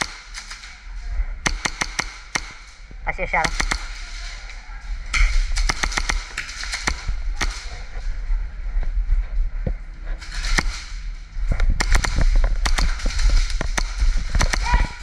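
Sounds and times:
airsoft gunshots snapping: 1.4s - 2.7s, 3.4s - 3.9s, 5.6s - 7.6s, 11.8s - 15.0s
low rumble of movement: 3.8s - 15.0s.

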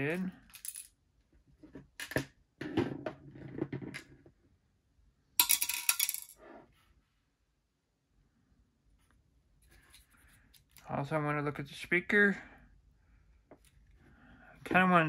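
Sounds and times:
plastic housing scraping and knocking: 2.6s - 4.3s.

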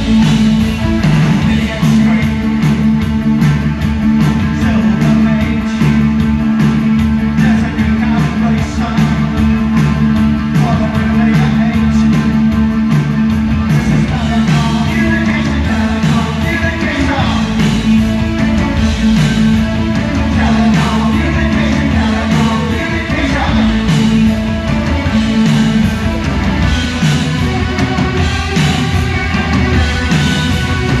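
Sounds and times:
electric guitars: 0.0s - 31.0s
keyboards: 0.0s - 31.0s
steady drum beat: 0.0s - 31.0s
person singing: 0.1s - 3.0s, 4.3s - 12.5s, 13.8s - 26.1s.

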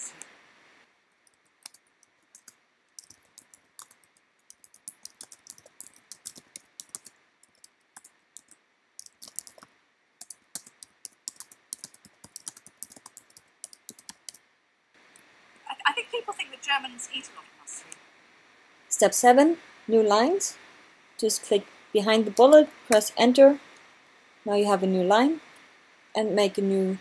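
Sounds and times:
computer keyboard typing: 1.2s - 14.4s.

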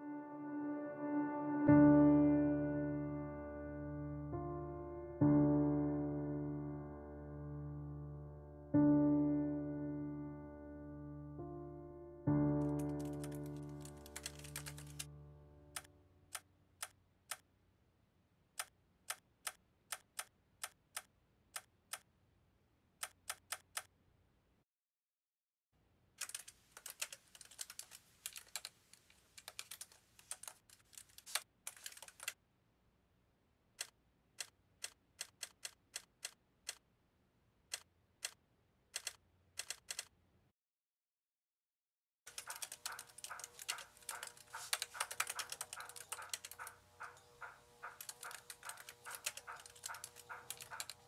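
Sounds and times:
laptop keyboard typing: 12.6s - 15.1s, 26.2s - 32.4s, 33.8s - 36.8s, 39.0s - 40.1s, 42.3s - 51.0s.

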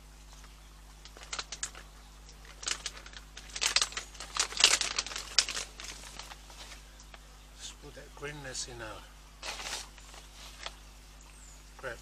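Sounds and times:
dry herbs crinkling: 0.2s - 7.2s, 9.4s - 10.9s.

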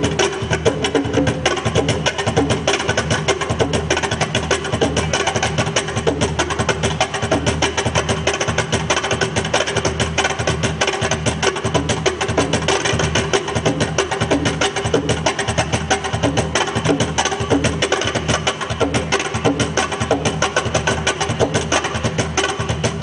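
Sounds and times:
wooden percussion clacks: 0.0s - 23.0s.

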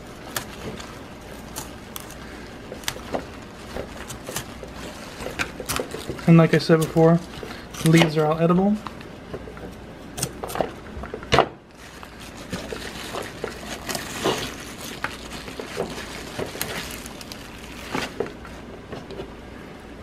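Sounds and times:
knife cutting crisp stems: 0.2s - 8.4s.

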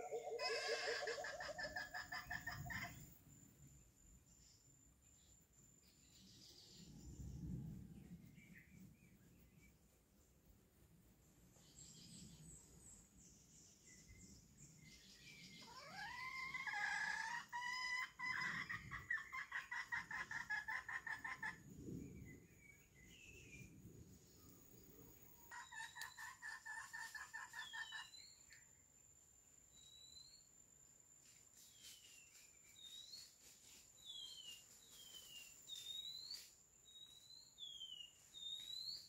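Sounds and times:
chicken call rising in pitch: 0.0s - 2.1s
chicken clucking: 0.0s - 3.0s, 25.5s - 28.0s
faint small-bird chirps: 11.6s - 17.0s, 21.9s - 29.1s, 29.7s - 30.6s, 31.3s - 39.0s.

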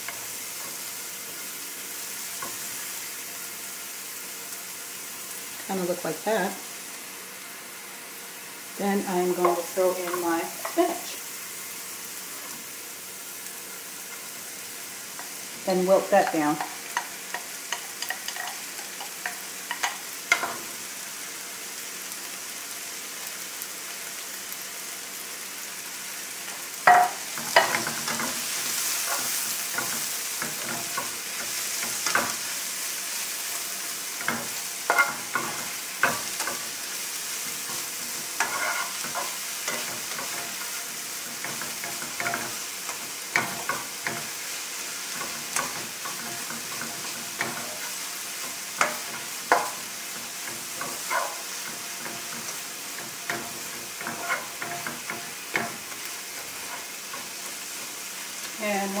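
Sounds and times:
spinach sizzling in frying pan: 0.0s - 59.0s
spatula scraping and tapping pan: 16.1s - 20.7s, 26.5s - 32.5s, 33.5s - 58.0s.

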